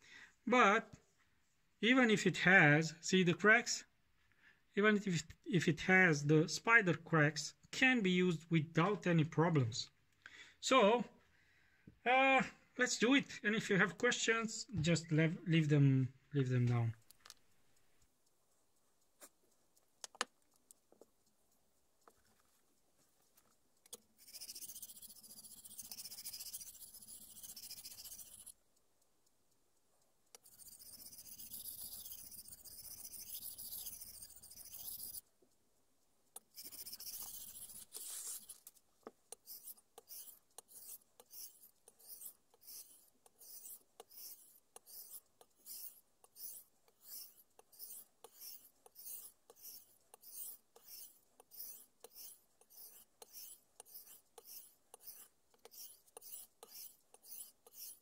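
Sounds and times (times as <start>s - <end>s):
block rubbing on whetstone: 24.2s - 28.5s, 30.4s - 35.2s, 36.5s - 38.6s, 39.3s - 58.0s
blade strokes on whetstone: 24.2s - 28.6s, 30.4s - 35.2s, 36.4s - 38.7s, 39.3s - 58.0s.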